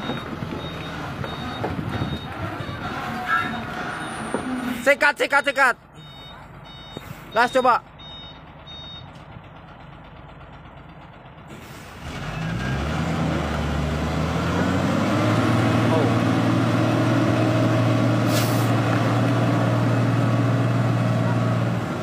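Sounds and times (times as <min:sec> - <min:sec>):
diesel truck engine revving: 0:00.0 - 0:22.0.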